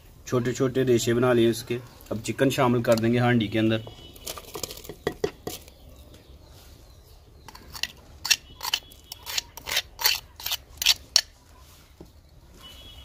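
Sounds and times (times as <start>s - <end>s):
scraping clay bowl: 7.4s - 12.0s.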